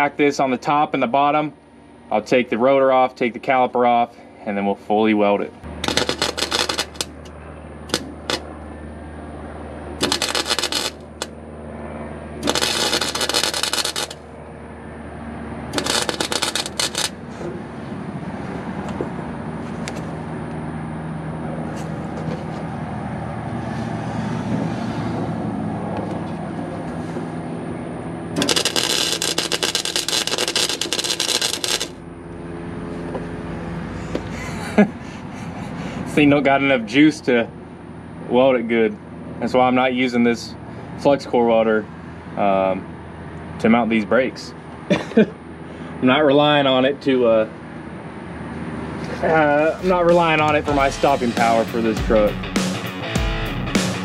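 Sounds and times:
welding arc crackling: 5.7s - 7.3s, 7.9s - 8.5s, 10.0s - 11.4s, 12.4s - 14.3s, 15.7s - 17.4s, 28.4s - 32.0s, 49.5s - 52.8s.

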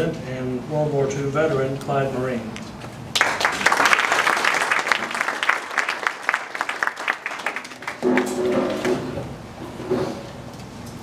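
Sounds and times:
audience applauding: 3.1s - 8.9s.

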